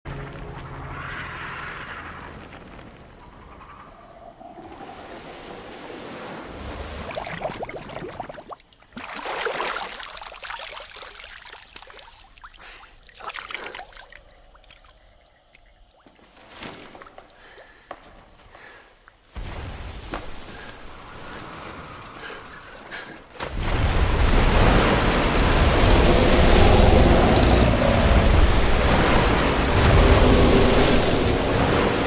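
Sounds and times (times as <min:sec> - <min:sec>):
water trickling: 0:06.8 - 0:16.4
canteen splashing in water: 0:07.1 - 0:14.8.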